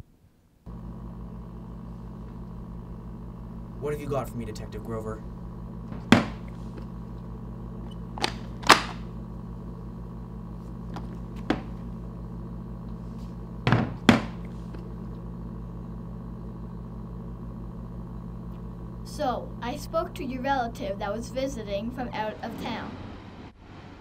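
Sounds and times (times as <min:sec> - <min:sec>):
steady low hum: 0:00.0 - 0:24.0
objects thunking on table: 0:05.9 - 0:06.6, 0:10.9 - 0:11.8, 0:13.7 - 0:14.5.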